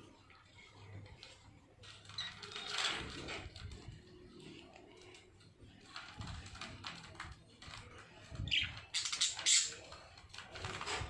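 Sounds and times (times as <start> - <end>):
budgerigars clicking and pecking: 8.4 - 9.9.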